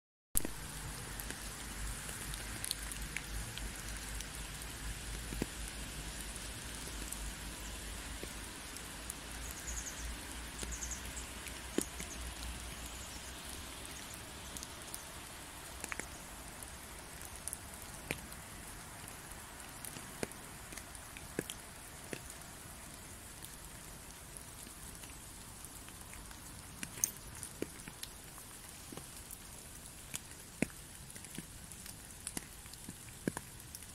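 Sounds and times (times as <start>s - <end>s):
rain hissing: 0.4s - 33.9s.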